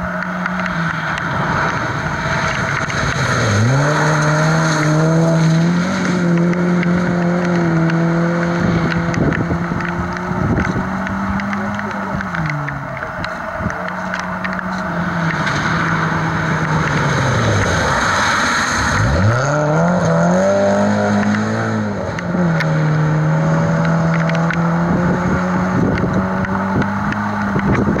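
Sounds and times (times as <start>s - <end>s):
rally car engine revving: 0.0s - 28.0s
tyres hissing through wet gravel: 15.0s - 19.6s.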